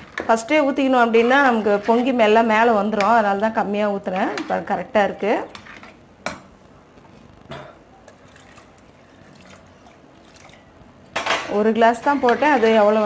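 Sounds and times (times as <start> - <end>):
water trickling into porridge: 8.1 - 10.8.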